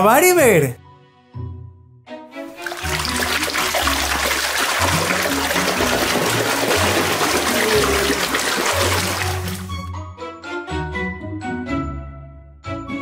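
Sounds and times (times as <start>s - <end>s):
water sloshing in a tub: 2.5s - 9.8s.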